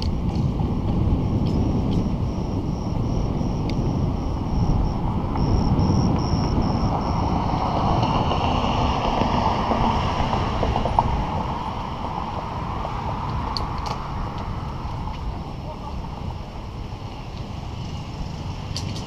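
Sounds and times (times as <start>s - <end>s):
bicycle tyre rumble on concrete: 0.0s - 19.0s
wind buffeting microphone: 0.0s - 19.0s
light high ticking: 1.2s - 8.1s.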